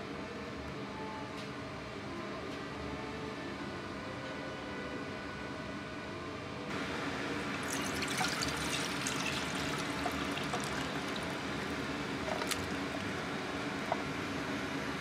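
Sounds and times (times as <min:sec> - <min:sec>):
water pouring into a saucepan: 0:07.6 - 0:13.2.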